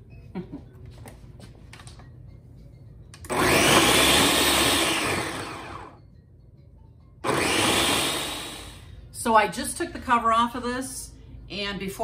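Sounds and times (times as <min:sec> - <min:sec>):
blender motor running: 0:03.3 - 0:06.0, 0:07.2 - 0:08.9.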